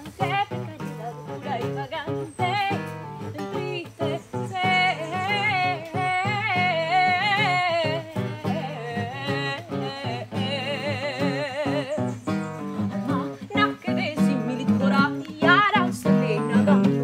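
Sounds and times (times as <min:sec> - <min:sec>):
plucked acoustic guitar: 0:00.0 - 0:17.0
woman singing with vibrato: 0:00.0 - 0:17.0.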